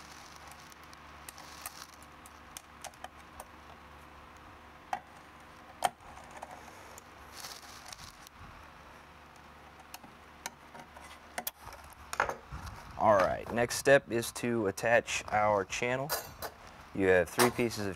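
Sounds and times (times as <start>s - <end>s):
scraping rustle: 0.0s - 2.1s, 6.1s - 8.4s.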